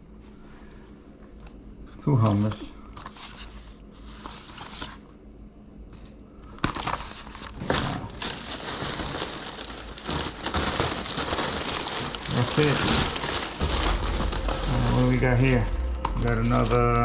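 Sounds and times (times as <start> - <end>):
paper packing rustling and crackling: 2.0 - 5.1, 6.0 - 17.0
faint handling sounds: 5.8 - 17.0.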